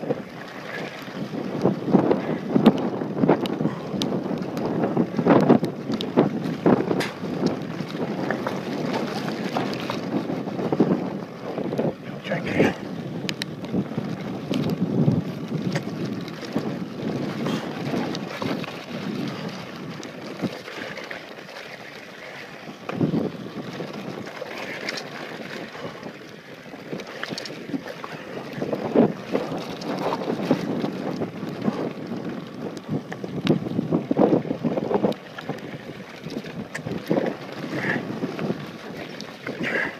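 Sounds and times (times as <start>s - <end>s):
bike tyres rolling over dirt: 0.0s - 39.9s
wind buffeting microphone: 0.0s - 39.9s
bike bumps and rattles: 1.3s - 11.9s, 13.4s - 21.8s.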